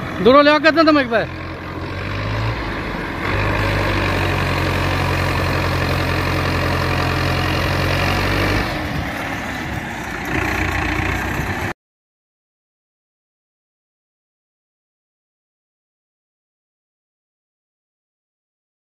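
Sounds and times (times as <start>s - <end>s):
diesel tractor engine running: 0.0s - 11.8s.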